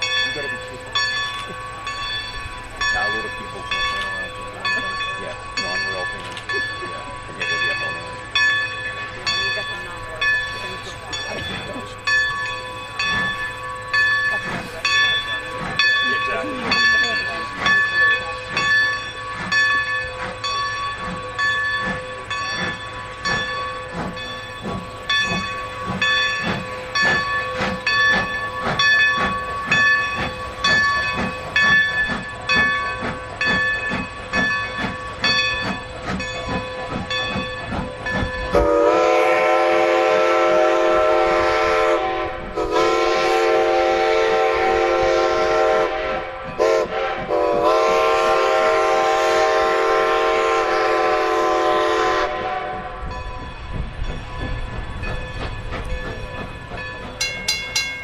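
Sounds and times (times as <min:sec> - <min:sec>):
steam locomotive exhaust beating: 0:00.0 - 0:58.0
steam whistle blasts: 0:38.5 - 0:53.1.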